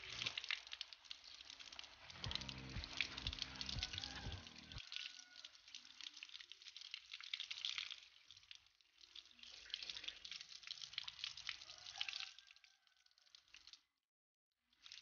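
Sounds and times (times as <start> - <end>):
tap water splashing on concrete: 0.0 - 10.3.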